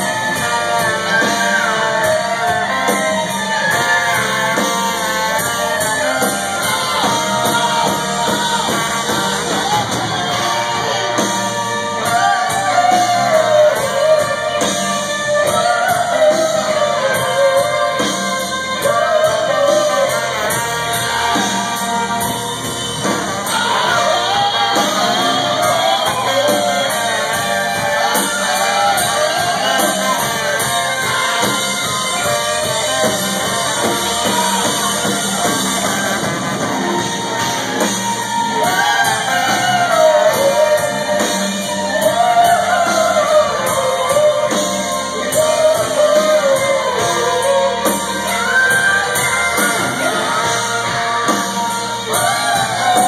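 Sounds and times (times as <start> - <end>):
drums: 0.0 - 53.0
singer belting: 0.0 - 53.0
trombone and trumpet: 0.0 - 53.0.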